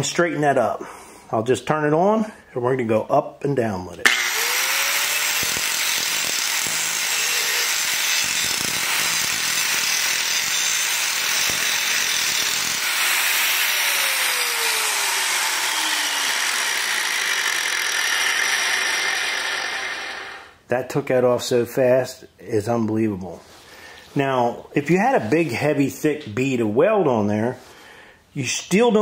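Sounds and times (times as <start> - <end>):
angle grinder grinding steel: 4.0 - 20.6.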